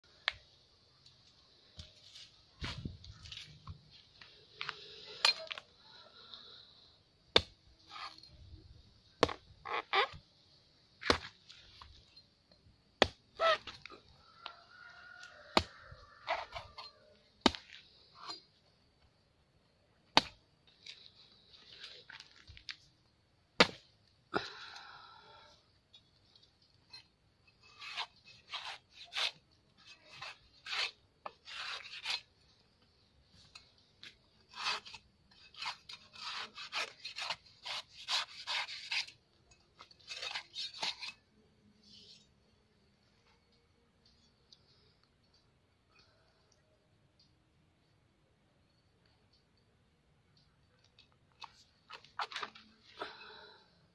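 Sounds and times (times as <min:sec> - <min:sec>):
machete chopping coconut: 0:07.3 - 0:08.2, 0:09.2 - 0:10.1, 0:11.0 - 0:11.4, 0:13.0 - 0:13.8, 0:15.5 - 0:16.7, 0:17.4 - 0:17.8, 0:20.1 - 0:20.4, 0:23.6 - 0:23.8, 0:34.5 - 0:39.1
blade scraping: 0:27.6 - 0:32.3, 0:34.4 - 0:39.2, 0:39.8 - 0:41.2.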